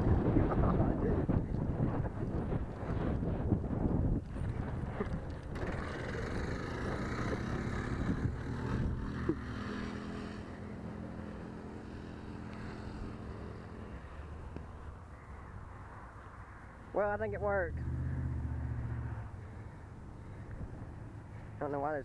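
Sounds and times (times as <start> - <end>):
minibike engine droning: 0.0 - 22.0.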